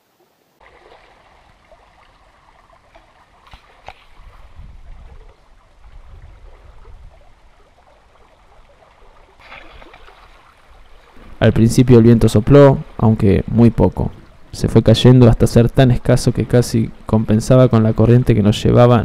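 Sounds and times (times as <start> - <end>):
water splashing along hull: 0.5 - 19.0
wind rumble on microphone: 3.8 - 9.3.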